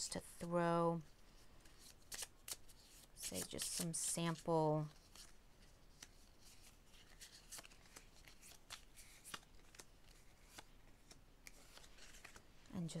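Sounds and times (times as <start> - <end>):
soft card clicks and slides: 5.0 - 12.6.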